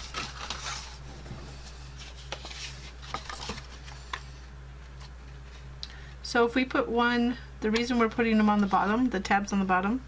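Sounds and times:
cardboard rustling and tapping: 0.0 - 4.2
steady low hum: 0.0 - 10.0.

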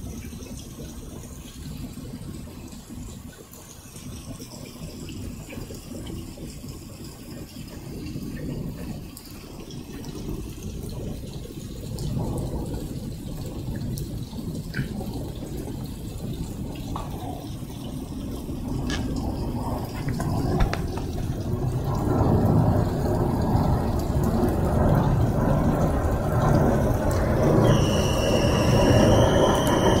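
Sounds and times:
rain on concrete: 0.0 - 30.0
high-pitched screech: 27.6 - 30.0.

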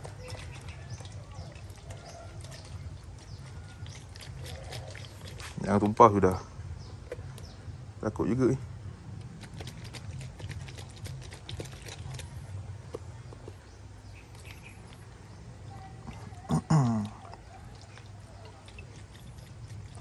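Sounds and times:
steady low hum: 0.0 - 20.0
plastic paint cup shaken: 9.3 - 12.5.

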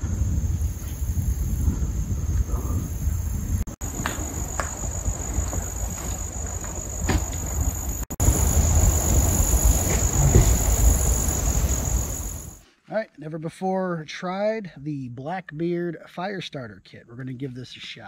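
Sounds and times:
low rumble on microphone: 0.0 - 5.7, 8.2 - 12.5
insects trilling: 0.0 - 12.6.

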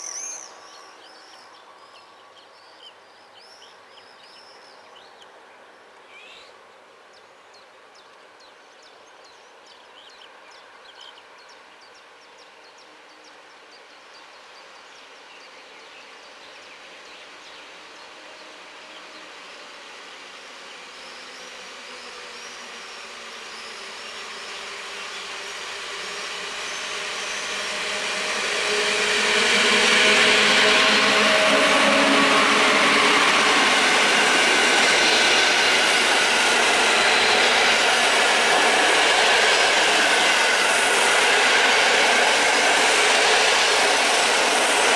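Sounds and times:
electric train hum: 17.7 - 44.9
train wheels on rails: 17.8 - 44.9.

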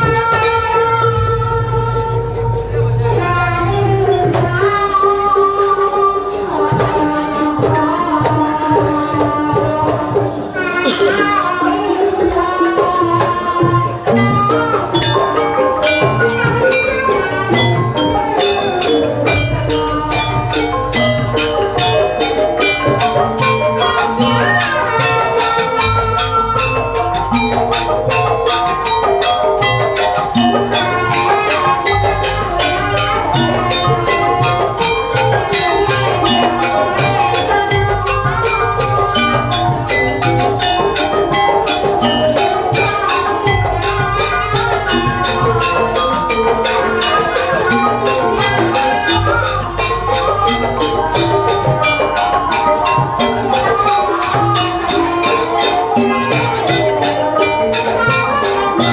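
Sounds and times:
drumming: 0.0 - 58.9
gamelan ensemble playing: 0.0 - 58.9
gongs: 0.0 - 58.9
metallophone keys: 14.0 - 58.9.

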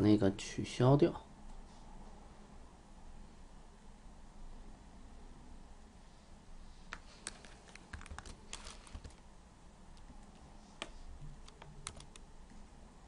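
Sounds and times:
computer keyboard keystrokes: 6.9 - 9.2, 10.0 - 12.3.

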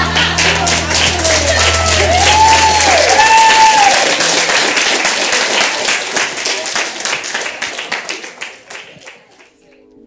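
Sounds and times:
cheering calls: 0.0 - 6.8
guests applauding: 0.0 - 9.6.

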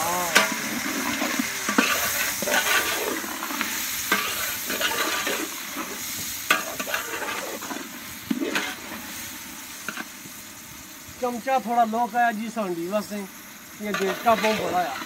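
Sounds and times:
vegetables sizzling in oil: 0.0 - 15.0
metal spoon scraping pot: 0.3 - 3.4, 4.1 - 5.5.

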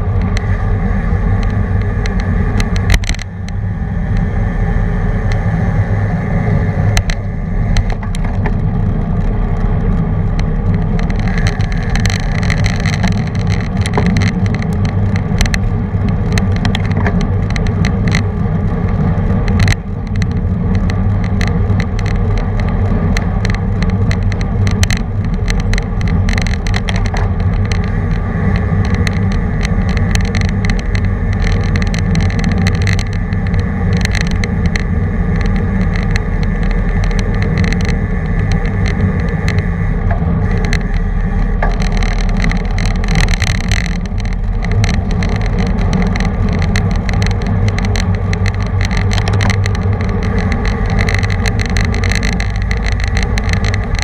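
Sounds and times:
bike clicks and knocks: 0.0 - 4.3, 6.9 - 54.0
tyre and road noise: 0.0 - 54.0
wind rushing over microphone: 0.0 - 54.0.

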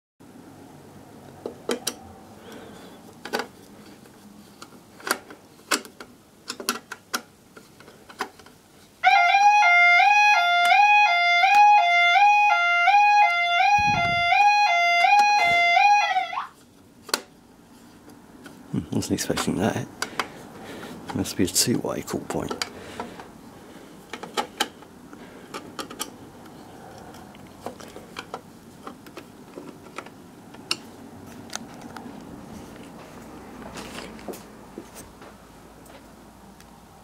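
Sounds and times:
two-tone fire alarm sounder: 9.0 - 16.5.

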